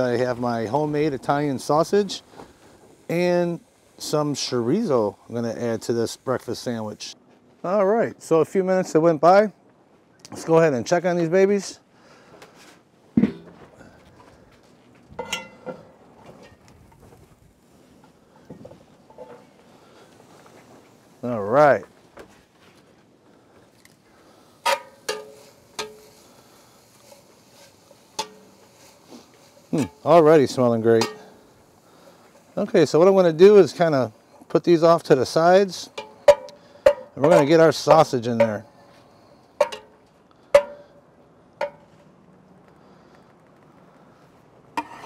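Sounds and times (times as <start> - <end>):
metal spatula clinking on cast iron pot: 15.2 - 15.8, 24.6 - 26.1, 28.2 - 28.6, 31.0 - 31.4, 35.9 - 37.5, 39.6 - 39.9, 40.6 - 40.9
metal spatula scraping a pot: 24.6 - 26.3, 44.8 - 45.0.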